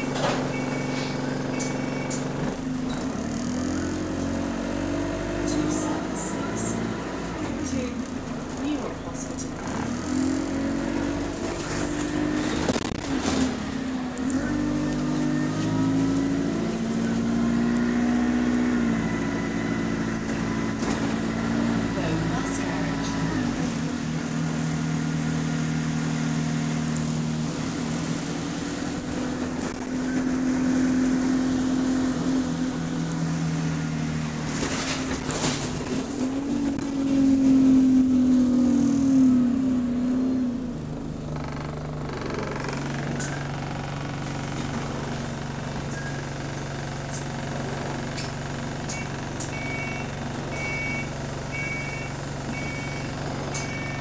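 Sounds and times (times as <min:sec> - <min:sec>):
short electronic beep: 0:00.0 - 0:02.2, 0:48.9 - 0:54.0
bus engine: 0:00.0 - 0:54.0.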